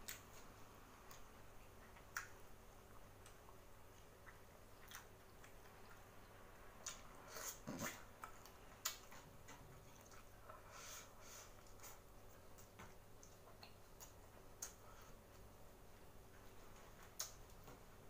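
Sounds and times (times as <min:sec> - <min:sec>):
lip smacks and mouth clicks: 0:00.0 - 0:00.4, 0:01.0 - 0:02.4, 0:03.2 - 0:10.3, 0:11.6 - 0:15.5, 0:17.0 - 0:17.6.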